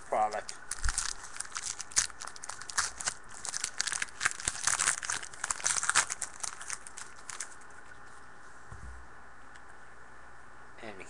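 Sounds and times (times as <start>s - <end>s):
foil wrapper tearing and crinkling: 0.1s - 7.8s.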